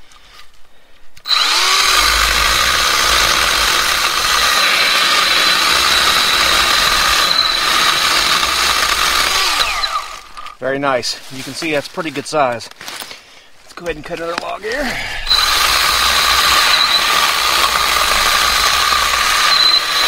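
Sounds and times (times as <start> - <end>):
battery chainsaw cutting wood: 1.2 - 10.6, 15.2 - 20.0.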